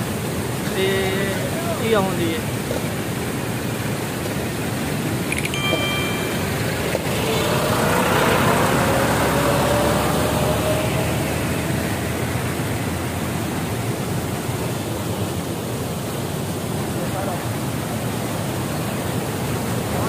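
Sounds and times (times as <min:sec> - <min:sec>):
water rushing down concrete channel: 0:00.0 - 0:20.0
faint rising hum: 0:05.0 - 0:14.8.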